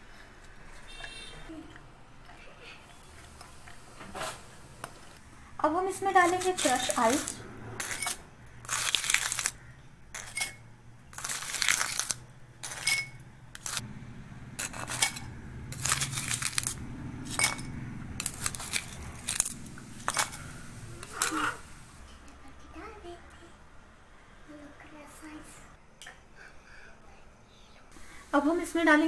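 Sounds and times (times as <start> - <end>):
crushed ice pouring into glass: 8.7 - 9.6, 11.2 - 13.8, 15.8 - 17.6.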